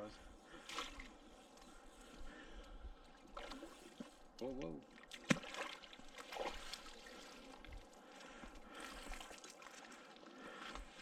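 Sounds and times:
water trickling and splashing: 0:00.5 - 0:11.0.

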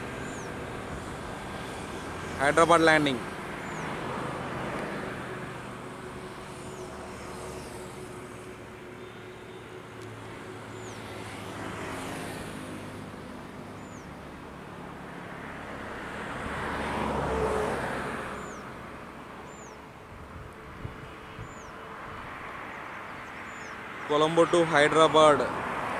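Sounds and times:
faint airliner hum: 0:00.0 - 0:15.9
road traffic passing: 0:00.0 - 0:25.9.

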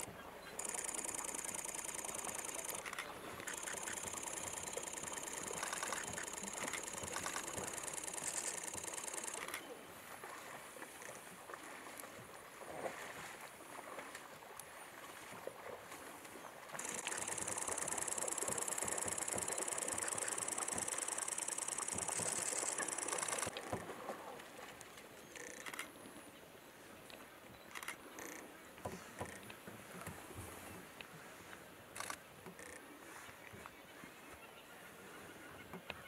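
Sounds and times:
small splashes: 0:00.0 - 0:24.8
high pulsing insect buzz: 0:00.6 - 0:09.5, 0:16.8 - 0:23.5.

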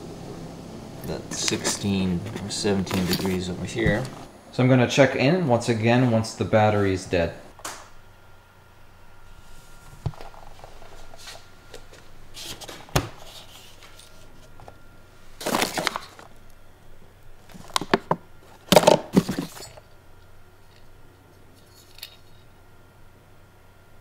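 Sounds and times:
faint steady hum: 0:00.0 - 0:24.0
plastic bags rustling: 0:01.1 - 0:04.3, 0:10.1 - 0:16.4.

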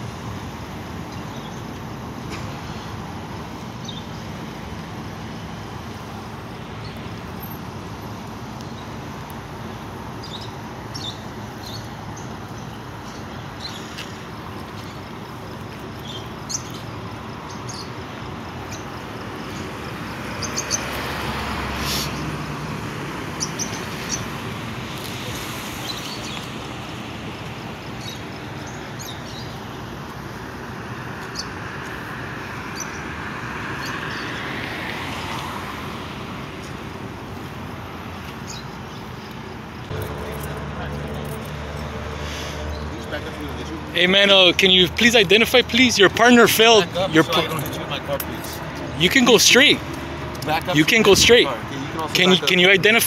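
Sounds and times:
road traffic hum: 0:00.0 - 0:53.0
vehicle passing: 0:19.4 - 0:27.2, 0:30.3 - 0:38.2, 0:39.9 - 0:53.0.

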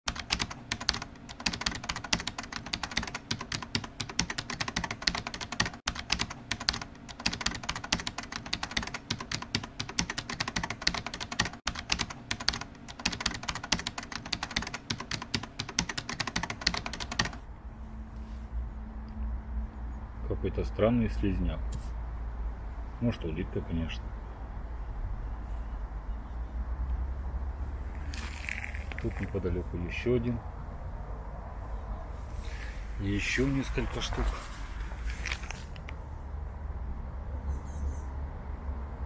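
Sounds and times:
rapid keyboard typing: 0:00.1 - 0:17.5.

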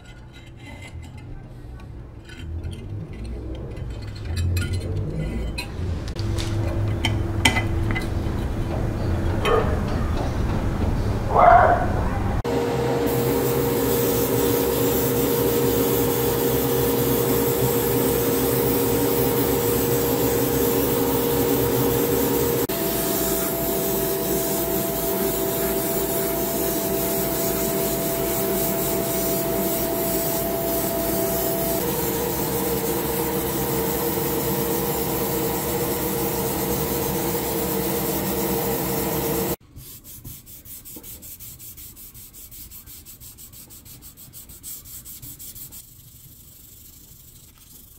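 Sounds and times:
extraction fan and airbrush whirr: 0:12.4 - 0:39.6
hand sanding with sandpaper: 0:13.1 - 0:47.9.

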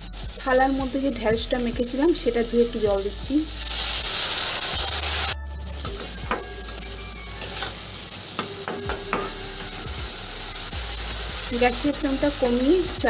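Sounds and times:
quiet sizzle: 0:00.0 - 0:13.0
water hissing in hot oil: 0:00.0 - 0:13.0
spatula scraping and tapping pan: 0:05.8 - 0:07.8, 0:08.4 - 0:09.4.

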